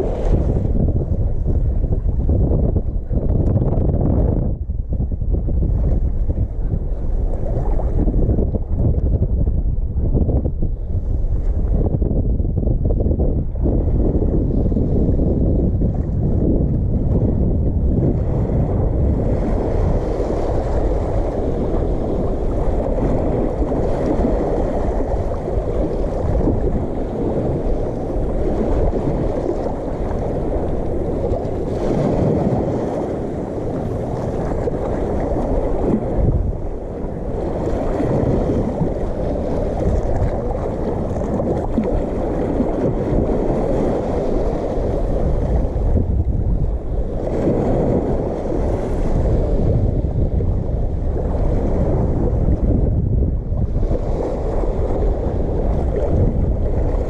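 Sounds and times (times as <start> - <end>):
water washing: 0.0 - 2.3
wind rushing over microphone: 0.0 - 57.0.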